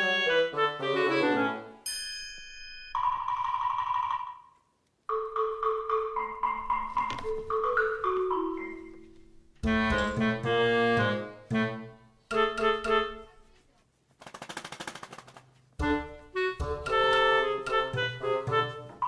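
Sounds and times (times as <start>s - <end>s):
light instrumental music: 0.0s - 2.3s, 5.1s - 13.7s, 15.8s - 19.0s
bell-like mallet percussion: 1.8s - 4.3s.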